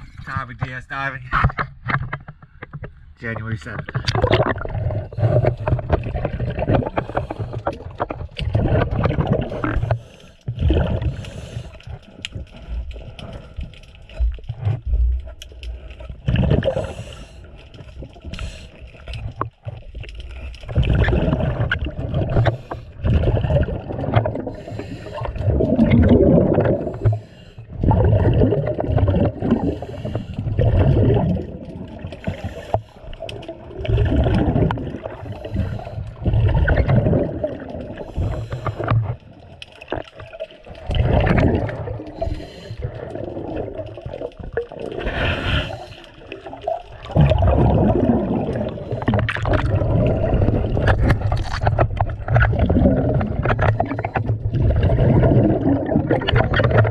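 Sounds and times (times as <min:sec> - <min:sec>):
air bubbles rushing and gurgling: 0:00.0 - 0:56.9
diver breathing through regulator: 0:06.9 - 0:07.7, 0:09.7 - 0:12.0, 0:16.6 - 0:17.6, 0:24.4 - 0:25.6, 0:26.7 - 0:27.8, 0:29.5 - 0:30.6, 0:32.2 - 0:33.1, 0:35.2 - 0:36.3, 0:38.0 - 0:39.2, 0:42.1 - 0:43.2, 0:45.0 - 0:46.3.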